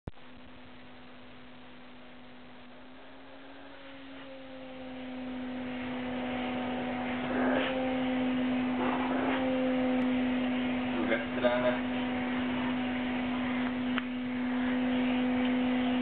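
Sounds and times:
vacuum cleaner running: 0:01.6 - 0:16.0
vacuum nozzle swishes: 0:05.7 - 0:10.2.

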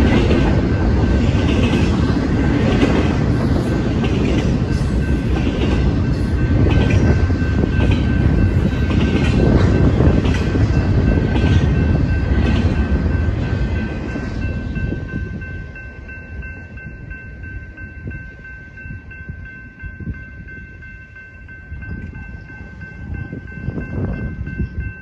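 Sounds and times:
train wheel clacks: 0:00.0 - 0:16.8
crossing bell ringing: 0:00.0 - 0:25.0
freight train rumbling past: 0:00.0 - 0:25.0.

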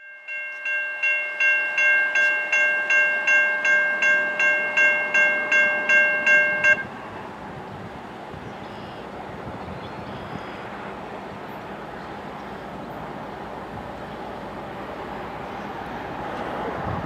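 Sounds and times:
crossing warning bell ringing: 0:00.0 - 0:07.4.

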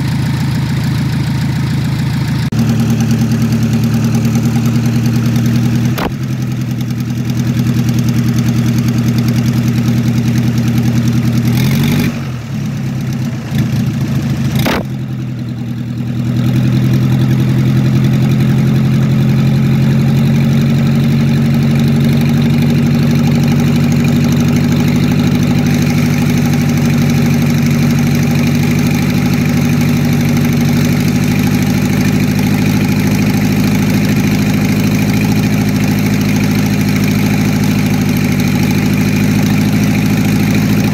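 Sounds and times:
diesel engine idling: 0:00.0 - 0:40.9
sharp click: 0:05.9 - 0:06.3, 0:14.6 - 0:15.0.

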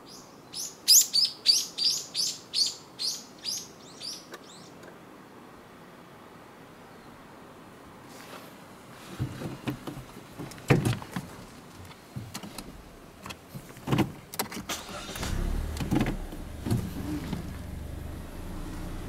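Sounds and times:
low steady rumble: 0:15.1 - 0:19.0.

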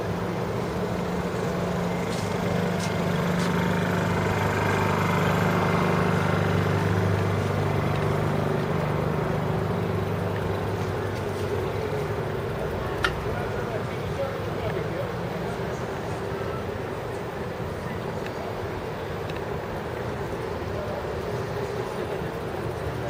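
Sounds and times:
heavy engine running: 0:00.0 - 0:23.0.

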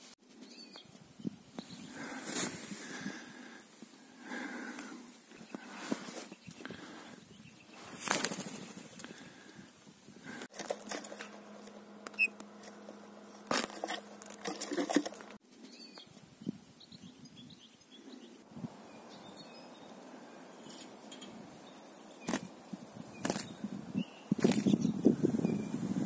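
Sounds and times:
soft bird chirps: 0:00.4 - 0:02.1, 0:15.6 - 0:25.8
birds flapping wings in a cage: 0:08.0 - 0:09.2, 0:22.2 - 0:22.5, 0:23.2 - 0:23.6, 0:24.3 - 0:24.8.

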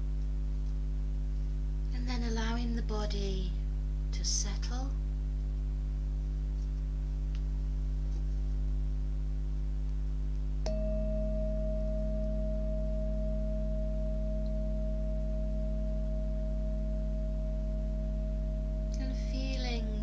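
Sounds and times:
low steady hum: 0:00.0 - 0:20.0
mallet striking singing bowl: 0:10.6 - 0:19.0
singing bowl ringing: 0:10.6 - 0:19.8.

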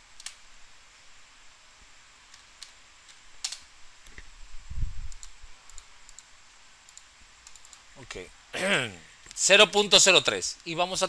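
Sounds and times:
mouse clicks: 0:05.1 - 0:06.3, 0:06.9 - 0:07.8.

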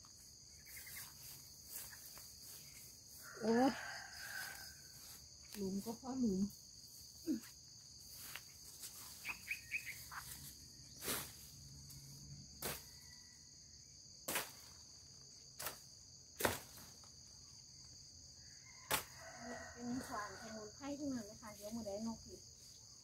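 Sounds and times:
high-pitched insect drone: 0:00.0 - 0:14.1.

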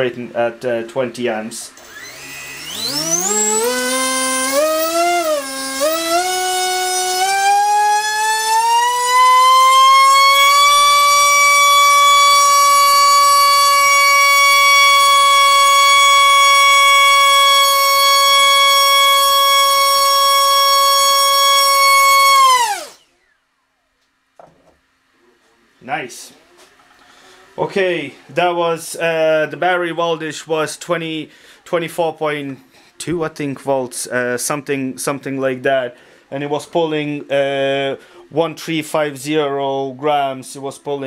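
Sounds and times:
motor and propeller whine: 0:01.8 - 0:06.5.

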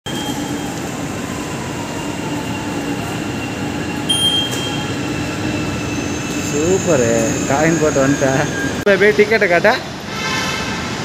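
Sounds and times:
station concourse hum: 0:00.1 - 0:11.0
high electronic beep: 0:04.1 - 0:04.9.

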